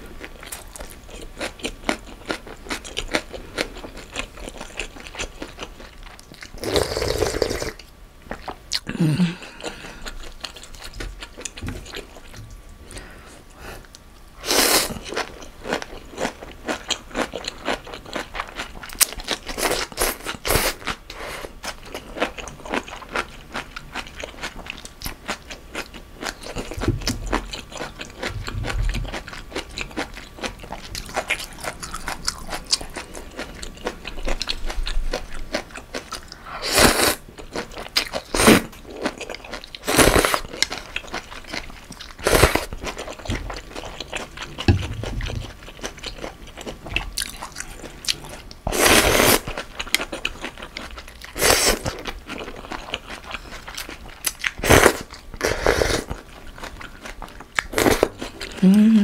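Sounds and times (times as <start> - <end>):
loud noodle slurps: 6.6 - 7.8, 36.6 - 37.2, 54.6 - 56.1
wet chewing and mouth clicks: 37.4 - 55.2.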